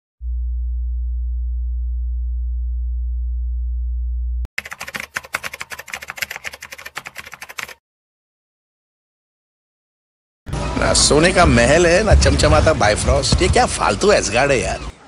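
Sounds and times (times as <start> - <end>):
steady low sine tone: 0.2 - 4.5
rapid keyboard typing clicks: 4.6 - 7.8.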